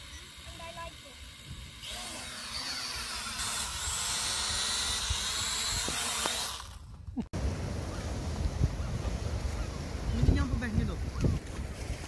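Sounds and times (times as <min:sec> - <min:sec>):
wind rumble on microphone: 0:06.9 - 0:12.0.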